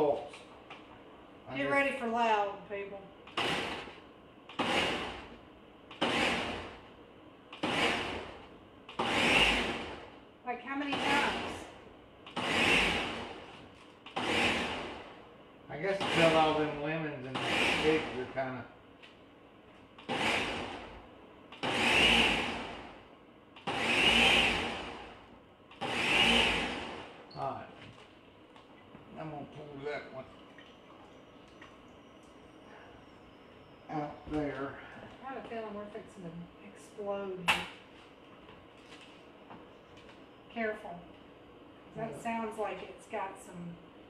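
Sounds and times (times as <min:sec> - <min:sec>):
blender pulsing: 0:03.3 - 0:03.9, 0:04.5 - 0:06.8, 0:07.6 - 0:08.4, 0:09.0 - 0:10.1, 0:10.7 - 0:11.7, 0:12.3 - 0:15.2, 0:15.9 - 0:18.3, 0:20.0 - 0:21.0, 0:21.6 - 0:23.0, 0:23.6 - 0:25.2, 0:25.8 - 0:27.2.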